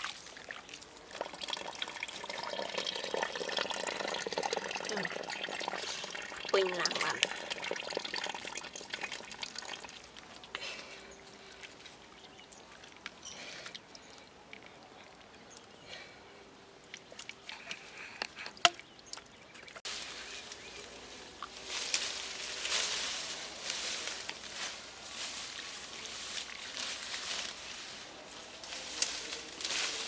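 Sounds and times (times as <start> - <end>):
rustling of leaves and branches: 9.4 - 18.4, 19.8 - 30.0.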